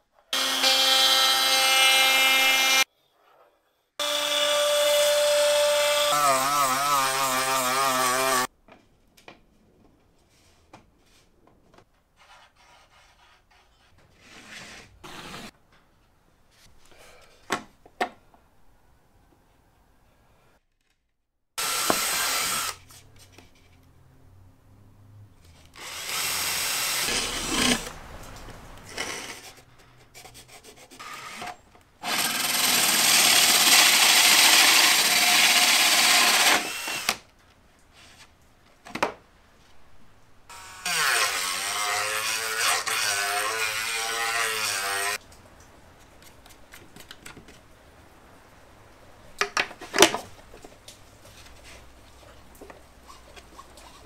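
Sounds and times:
power drill cutting through wood: 0:00.4 - 0:02.9, 0:04.0 - 0:08.5, 0:21.6 - 0:22.8, 0:25.8 - 0:27.9, 0:31.0 - 0:37.2, 0:40.5 - 0:45.2.

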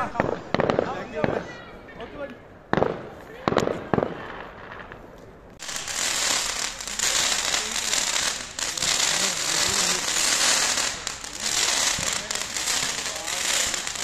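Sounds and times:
firework fountain hissing crackle: 0:00.0 - 0:01.6, 0:02.7 - 0:14.0.

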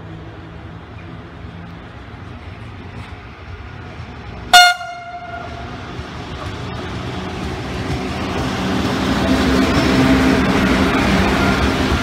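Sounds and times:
approaching train rumble: 0:00.0 - 0:12.0
train horn blast: 0:04.5 - 0:05.8.

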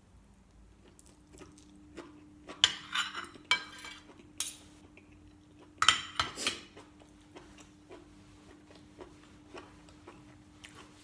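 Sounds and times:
spoon scraping a ceramic plate: 0:02.6 - 0:04.6.

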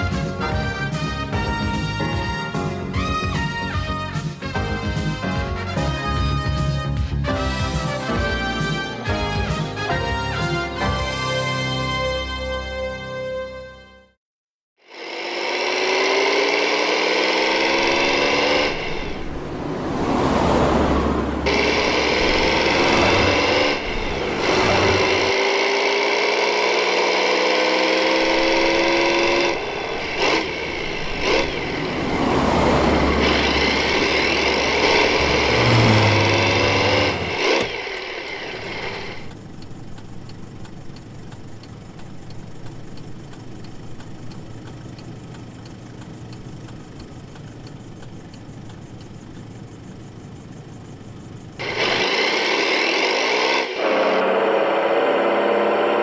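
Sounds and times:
vehicle engine revving: 0:14.8 - 0:56.0.

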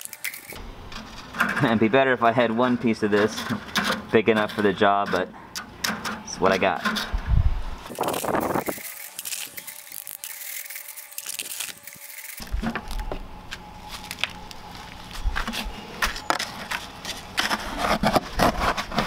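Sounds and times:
cement lumps scraped through wire mesh: 0:16.4 - 0:19.0.

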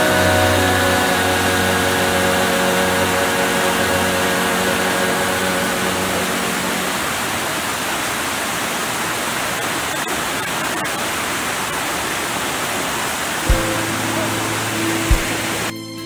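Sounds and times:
held notes of background music: 0:00.0 - 0:07.2, 0:13.5 - 0:16.0
whitewater rushing over rocks: 0:00.0 - 0:15.7.

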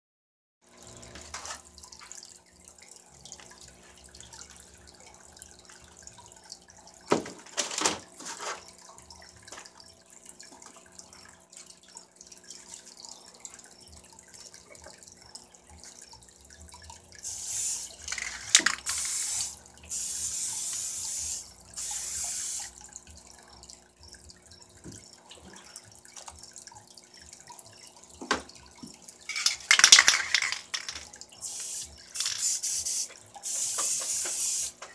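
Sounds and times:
faint steady hum: 0:00.7 - 0:34.1
aerosol spray can hissing: 0:17.2 - 0:22.7, 0:31.4 - 0:34.8
lids and jars clacking: 0:29.3 - 0:31.1.

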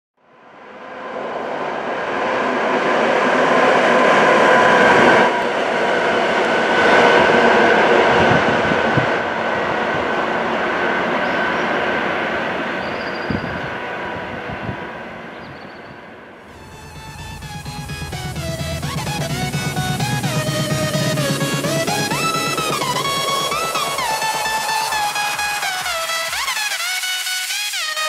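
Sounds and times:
train rolling noise: 0:16.5 - 0:26.5
diesel locomotive engines whining: 0:16.5 - 0:27.0.

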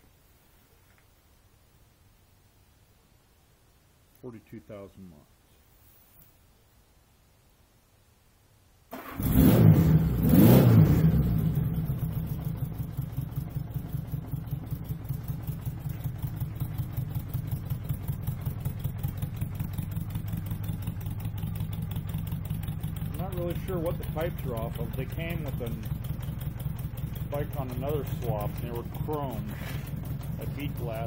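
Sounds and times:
engine revving: 0:08.9 - 0:13.1, 0:22.8 - 0:31.0
motorcycle engine starting and idling: 0:08.9 - 0:31.0.

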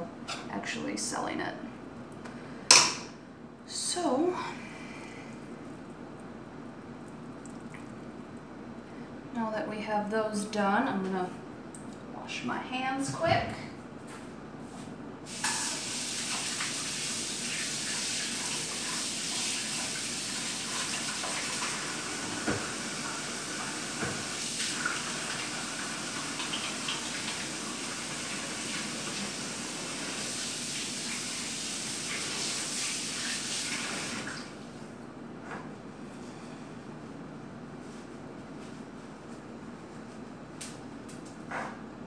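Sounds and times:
tap water splashing into sink: 0:20.7 - 0:22.8, 0:23.9 - 0:25.5.

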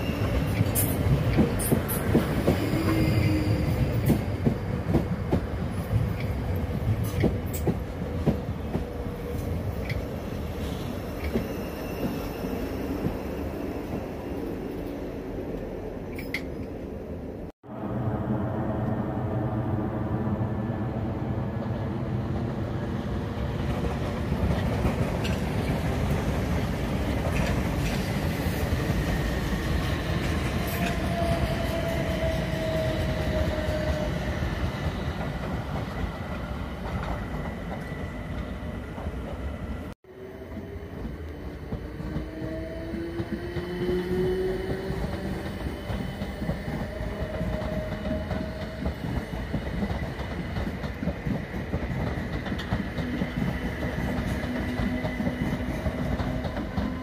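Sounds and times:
electric train running past: 0:00.0 - 0:16.4, 0:17.0 - 0:57.0
train tone shifting in pitch: 0:02.3 - 0:04.1, 0:10.6 - 0:14.6.

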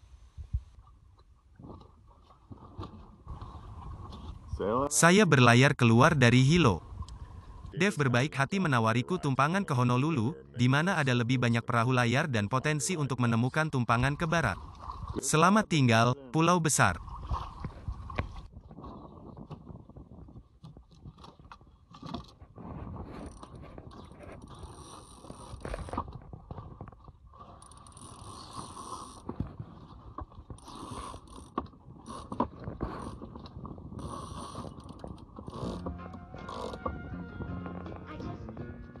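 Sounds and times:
rope rubbing through fittings: 0:35.4 - 0:36.9.

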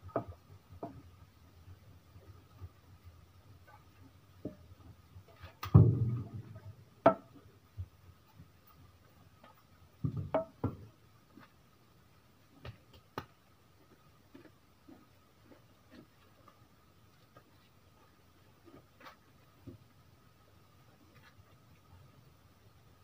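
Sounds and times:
thumps and knocks handling a pig: 0:05.5 - 0:07.4, 0:10.0 - 0:10.9.

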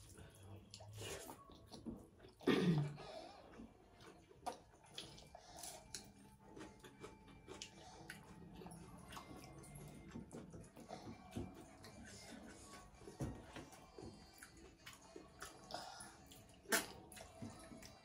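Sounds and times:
wet chewing: 0:03.4 - 0:18.0
lip smacks: 0:16.7 - 0:17.3.

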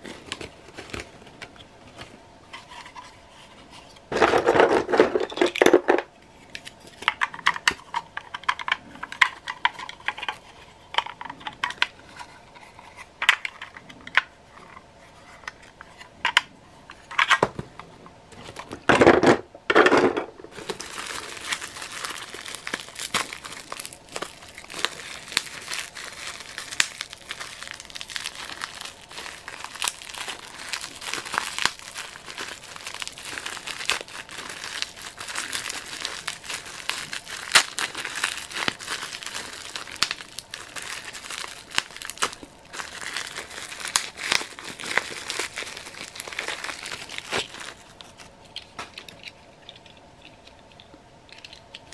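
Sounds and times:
paper and bubble wrap rustling: 0:00.0 - 0:05.6, 0:20.5 - 0:49.3
plastic toy parts clicking: 0:48.5 - 0:51.9.

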